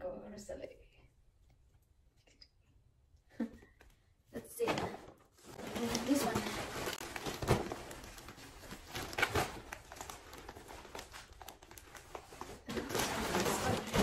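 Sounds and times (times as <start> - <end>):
plastic mailer bag crinkling: 5.4 - 14.0.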